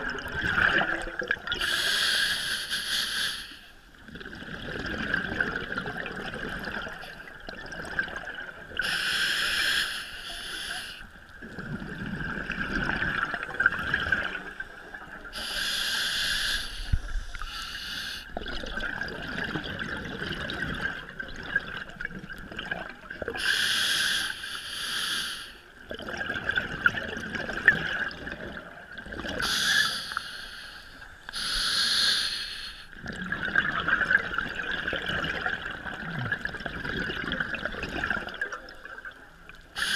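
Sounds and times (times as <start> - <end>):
exhaled air bubbling: 0.0 - 2.0, 3.9 - 9.4, 11.0 - 23.5, 25.8 - 30.0, 32.9 - 39.9
regulator hiss on inhale: 1.6 - 3.8, 8.8 - 11.1, 15.4 - 18.3, 23.4 - 25.7, 29.4 - 33.0.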